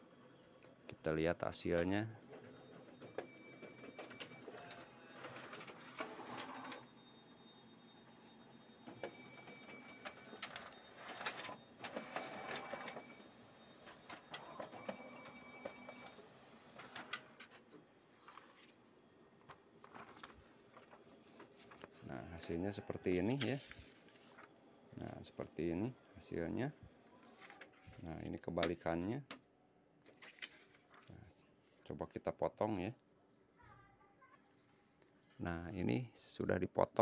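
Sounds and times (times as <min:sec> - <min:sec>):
photocopier whirring and rustling: 0:01.8 - 0:28.7.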